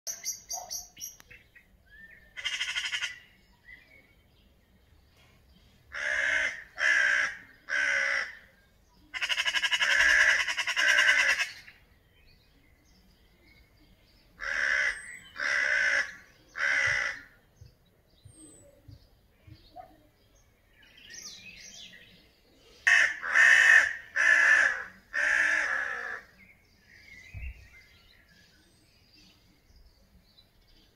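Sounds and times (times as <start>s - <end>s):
small birds chirping: 0.1s - 22.9s, 24.9s - 30.9s
crows cawing: 2.4s - 3.2s, 5.9s - 8.4s, 9.2s - 11.6s, 14.4s - 17.4s, 22.9s - 26.3s.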